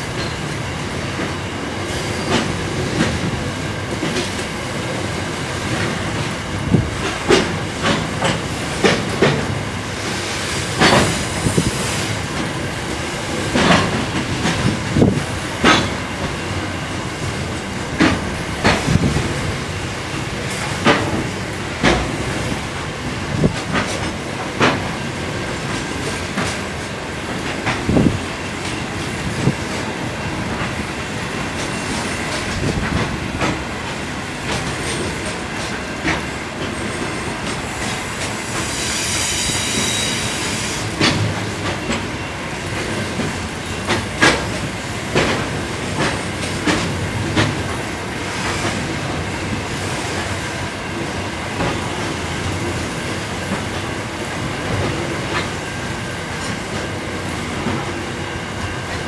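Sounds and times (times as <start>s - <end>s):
train wheels clacking over rail joints: 0.0s - 59.0s
high-pitched wheel squeal: 38.6s - 40.8s.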